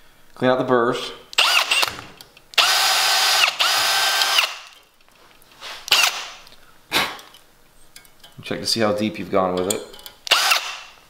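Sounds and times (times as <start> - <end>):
cordless drill drilling into rivet: 1.4 - 4.7, 5.9 - 6.3, 10.3 - 10.9.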